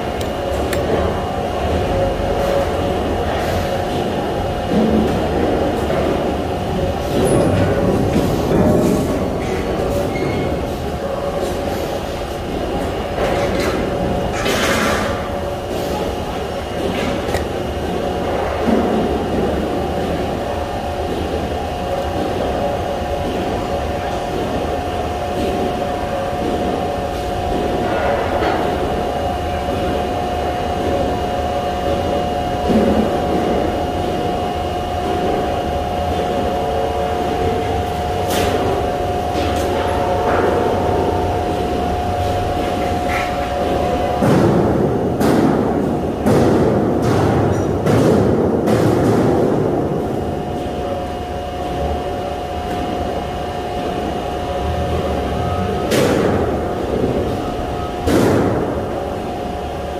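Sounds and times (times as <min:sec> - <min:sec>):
thin constant whine: 0:00.0 - 0:47.8
shop machinery humming: 0:00.0 - 0:59.9.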